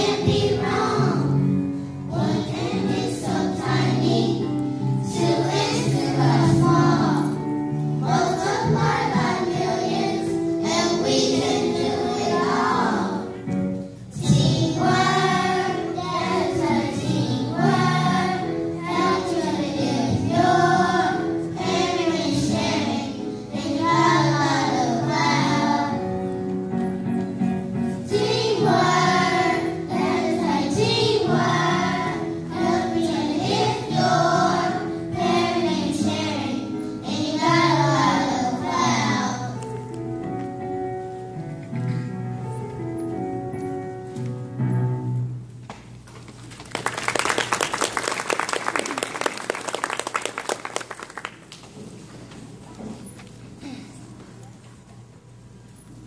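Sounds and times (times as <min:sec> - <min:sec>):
children's choir singing: 0:00.0 - 0:13.4, 0:14.1 - 0:26.3, 0:28.0 - 0:39.7
instrumental accompaniment: 0:00.0 - 0:45.8.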